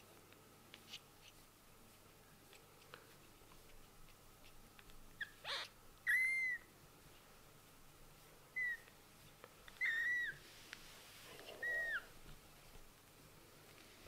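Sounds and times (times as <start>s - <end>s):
kitten mewing: 5.2s - 6.7s, 11.4s - 12.1s.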